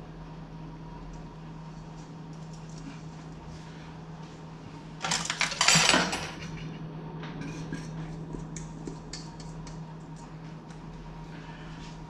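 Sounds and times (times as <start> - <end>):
metal bowls clattering and scraping: 5.0 - 8.3.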